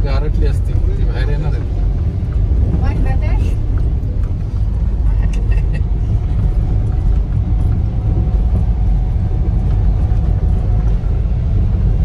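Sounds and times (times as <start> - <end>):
car driving on wet road: 0.0 - 12.0.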